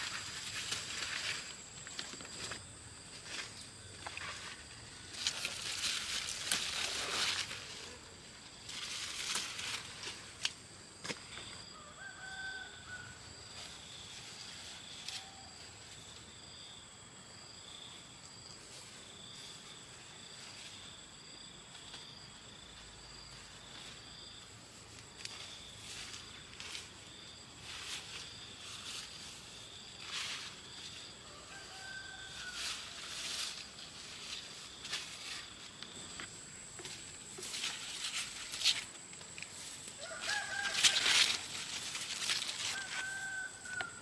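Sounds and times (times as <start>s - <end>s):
rooster crowing: 11.6s - 13.5s, 31.0s - 33.4s, 39.9s - 44.0s
bursts of rustling: 37.4s - 43.2s.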